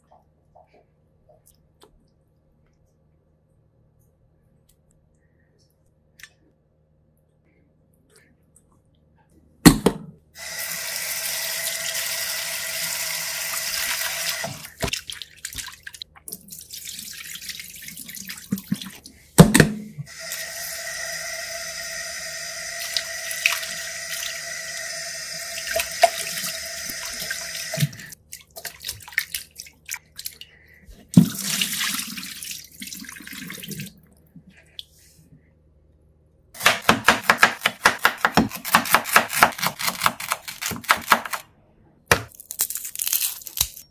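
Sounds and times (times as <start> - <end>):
hands rinsing and rubbing: 13.4 - 19.4, 20.1 - 35.2.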